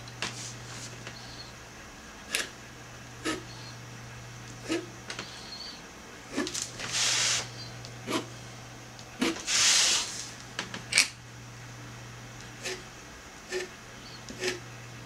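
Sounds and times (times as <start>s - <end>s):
pen scratching across paper: 14.3s - 14.6s.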